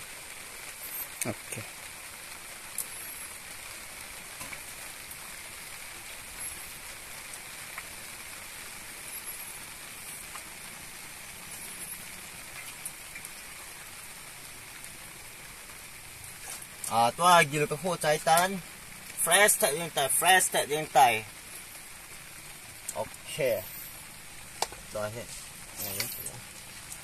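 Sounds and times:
outdoor background hiss: 0:00.0 - 0:27.0
faint clicks and crackles: 0:09.1 - 0:14.1.

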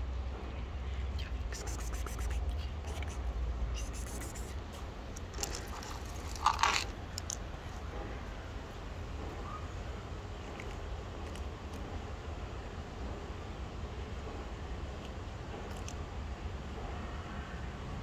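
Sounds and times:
cats crunching kibble: 0:01.2 - 0:07.8, 0:10.4 - 0:11.9
kibble rattling onto stone: 0:05.1 - 0:07.8.

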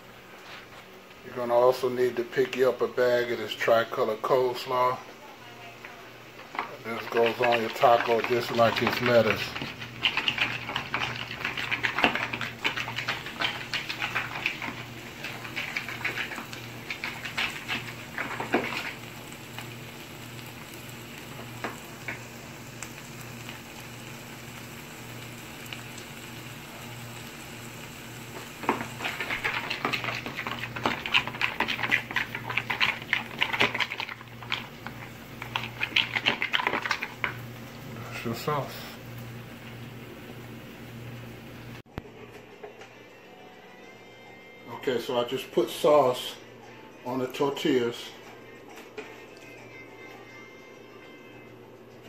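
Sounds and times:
spoon stirring thick sauce: 0:06.7 - 0:19.0, 0:28.7 - 0:37.4.

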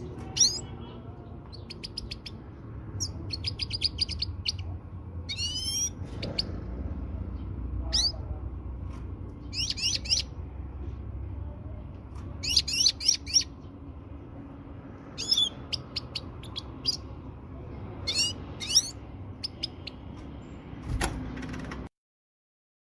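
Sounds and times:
finch chirping: 0:00.2 - 0:06.7, 0:07.3 - 0:08.3, 0:09.4 - 0:10.5, 0:12.4 - 0:13.8, 0:15.1 - 0:17.2, 0:18.0 - 0:20.1.

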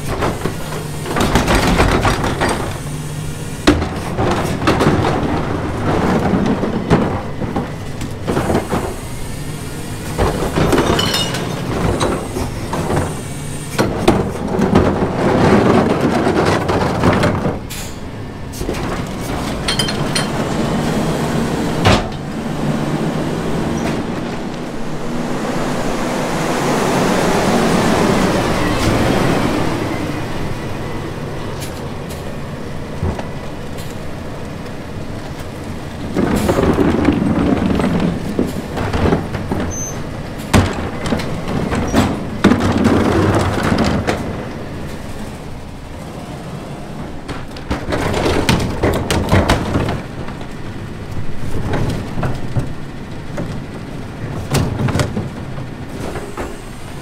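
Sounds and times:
rushing noise: 0:00.0 - 0:39.6
garbage truck hopper clattering: 0:00.0 - 0:57.0.

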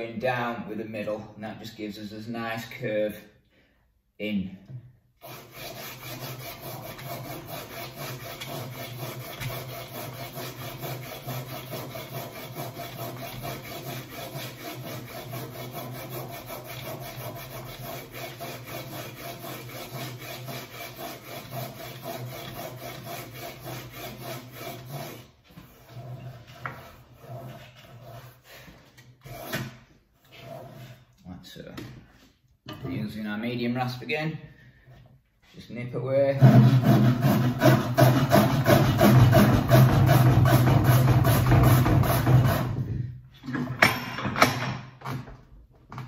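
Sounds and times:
sandpaper scraping back and forth: 0:05.2 - 0:31.2, 0:36.3 - 0:42.9.

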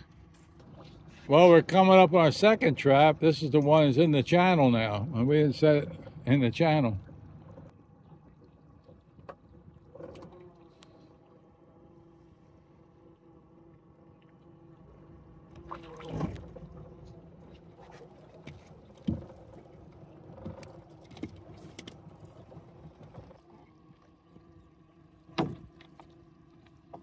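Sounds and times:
boat motor running: 0:00.0 - 0:27.0
sharp knocks on boat: 0:25.3 - 0:26.0.

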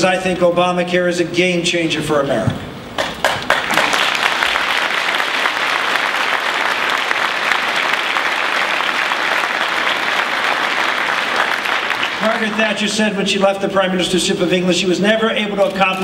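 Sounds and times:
audience applauding: 0:03.0 - 0:12.8.

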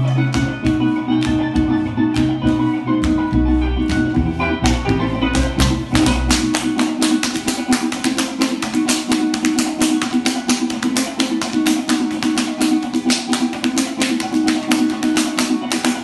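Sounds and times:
plucked strings: 0:00.0 - 0:16.0
fast percussive strokes: 0:04.2 - 0:16.0.

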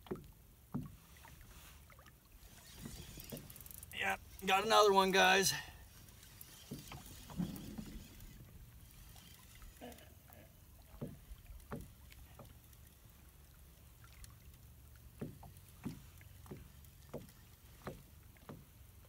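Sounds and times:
small waves lapping against boat: 0:00.0 - 0:19.0.

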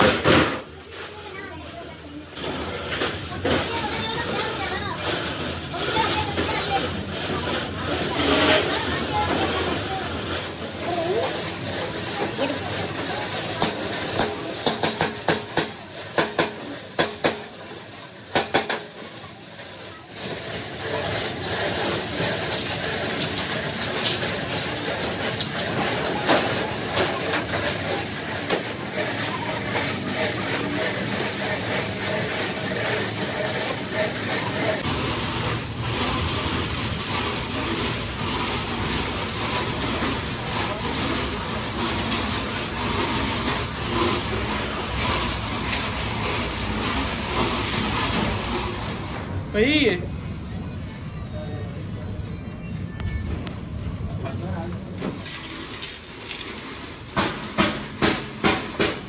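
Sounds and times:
electric arc welding: 0:20.1 - 0:40.4
hammer striking steel tank: 0:57.2 - 0:59.0.

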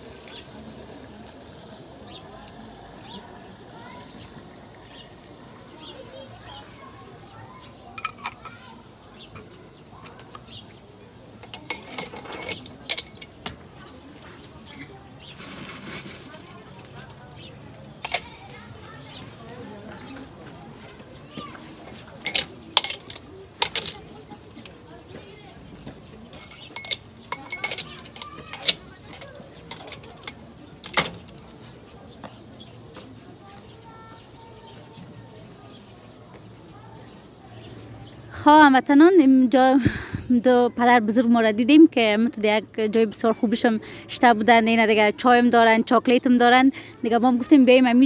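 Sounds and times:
teapots and glasses clinking: 0:07.9 - 0:08.6, 0:11.4 - 0:13.6, 0:18.0 - 0:18.4, 0:21.9 - 0:24.8, 0:26.2 - 0:31.4.

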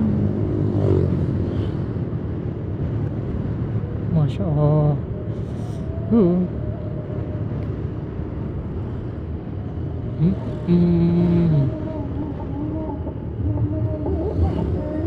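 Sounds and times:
road and wind noise: 0:00.0 - 0:15.0
vehicle engine rumble: 0:00.0 - 0:15.0
man humming a tune: 0:06.0 - 0:06.8, 0:10.1 - 0:15.0.

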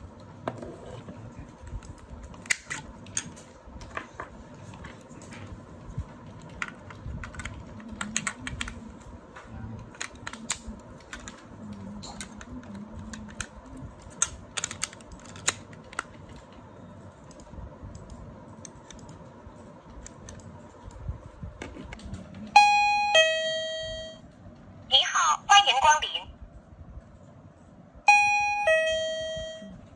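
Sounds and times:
electronic door chime tone: 0:22.6 - 0:24.2, 0:28.1 - 0:29.9.

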